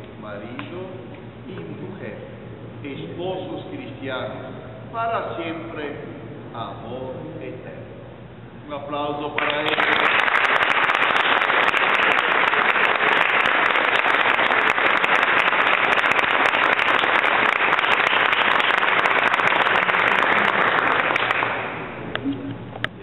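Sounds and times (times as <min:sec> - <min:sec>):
crowd applauding: 0:09.4 - 0:22.0.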